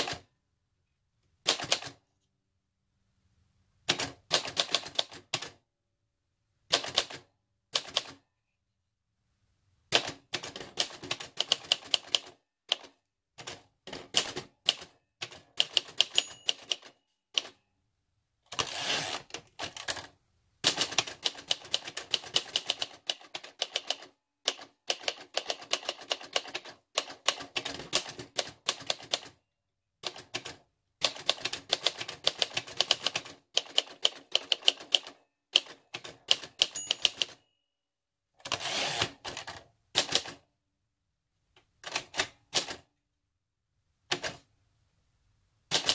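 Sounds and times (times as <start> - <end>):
typewriter keys clacking: 13.9 - 17.5, 31.1 - 37.4.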